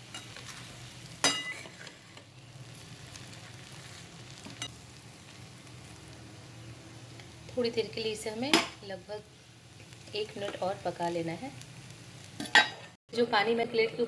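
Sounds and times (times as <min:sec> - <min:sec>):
spatula scraping pan: 0:00.0 - 0:02.3
food sizzling in metal pan: 0:00.0 - 0:14.0
spatula clanging on pan: 0:01.2 - 0:02.0, 0:12.4 - 0:13.0.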